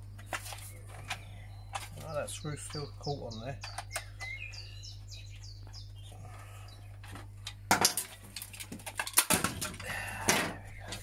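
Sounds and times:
plastic casing cracking and clicking: 0:07.4 - 0:09.8.

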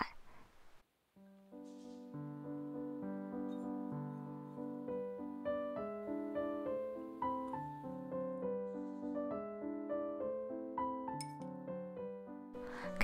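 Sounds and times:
gentle piano melody: 0:01.2 - 0:13.0.

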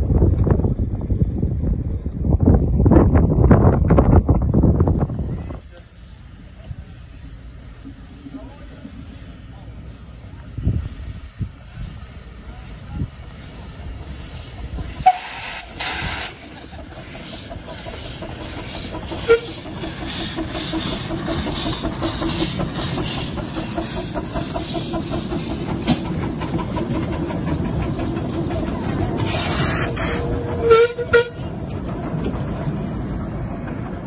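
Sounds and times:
train running on track: 0:00.0 - 0:34.0
steam hissing: 0:04.9 - 0:30.6
train whistle toot: 0:15.0 - 0:16.3, 0:19.2 - 0:19.6, 0:29.4 - 0:31.4.

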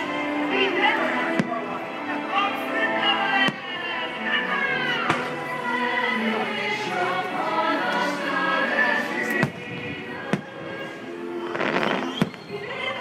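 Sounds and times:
soundtrack music with choir: 0:00.0 - 0:13.0
firework bangs: 0:11.6 - 0:12.6.

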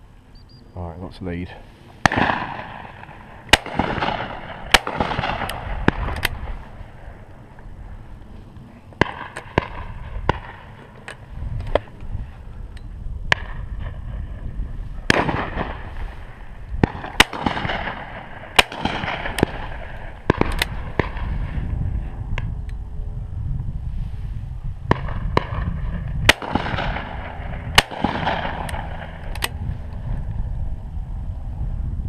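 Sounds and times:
shotguns firing with echo: 0:02.0 - 0:07.2, 0:09.0 - 0:10.8, 0:15.1 - 0:15.9, 0:16.8 - 0:21.4, 0:24.9 - 0:29.6.

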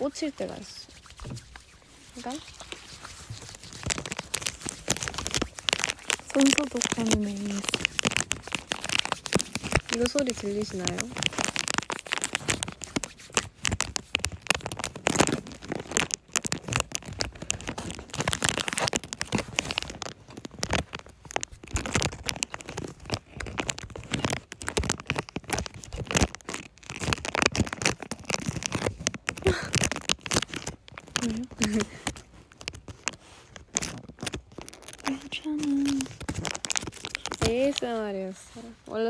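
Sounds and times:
hands rubbing sanitizer: 0:00.9 - 0:09.9.

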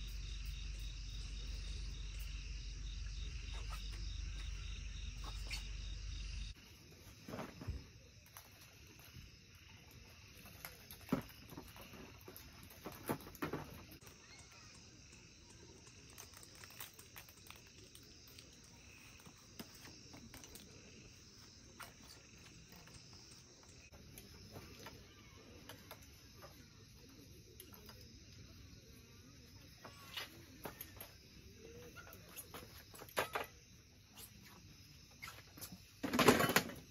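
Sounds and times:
crickets chirping: 0:00.0 - 0:36.9
camping gear knocking and clattering: 0:10.1 - 0:14.2, 0:35.7 - 0:36.9.

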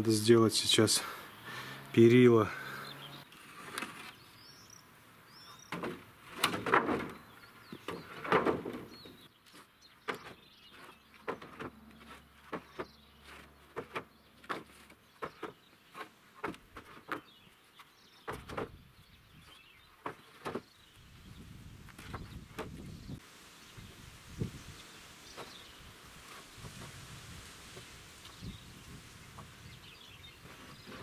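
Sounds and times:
wooden boards scraping: 0:02.6 - 0:04.2, 0:05.5 - 0:18.8, 0:19.4 - 0:20.7, 0:21.8 - 0:23.2, 0:25.3 - 0:31.0
wooden knocks and clatters: 0:05.7 - 0:09.2, 0:10.0 - 0:17.4, 0:18.1 - 0:18.8, 0:19.4 - 0:20.7.

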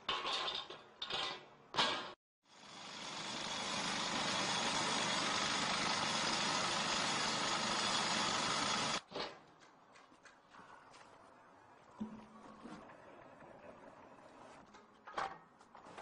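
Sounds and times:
cutting machine grinding asphalt: 0:02.5 - 0:09.0.

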